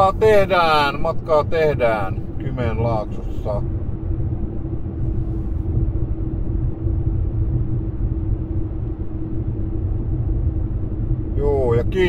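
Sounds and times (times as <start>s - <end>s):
car cabin rumble: 0.0s - 12.0s
even hum: 0.0s - 12.0s.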